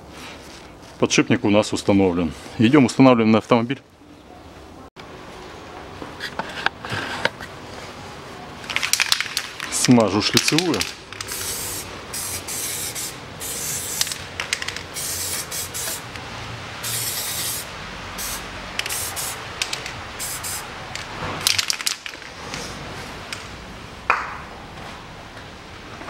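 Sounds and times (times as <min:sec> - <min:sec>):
aerosol spray can hissing: 0:11.2 - 0:14.2, 0:14.8 - 0:16.0, 0:16.8 - 0:20.7.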